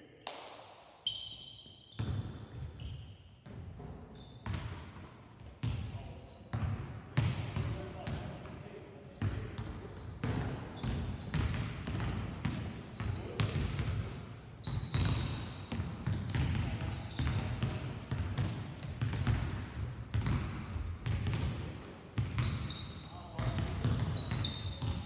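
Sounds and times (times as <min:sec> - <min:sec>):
sneakers squeaking on court: 0:01.0 - 0:25.0
basketballs bouncing on floor: 0:02.0 - 0:08.5, 0:09.2 - 0:25.0.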